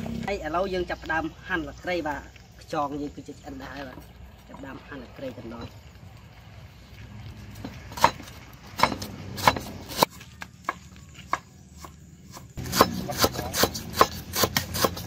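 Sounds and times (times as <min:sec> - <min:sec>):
cleaver chopping on wooden block: 0:07.9 - 0:15.0.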